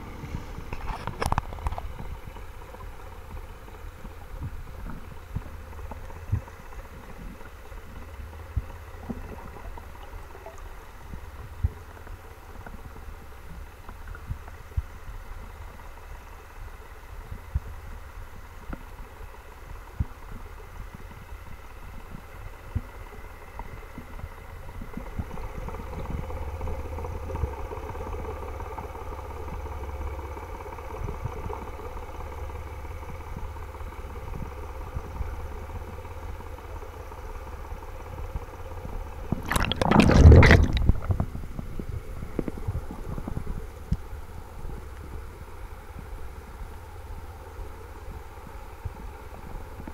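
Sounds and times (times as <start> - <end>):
faint engine hum: 0.0 - 49.9
low underwater rumble: 39.3 - 43.6.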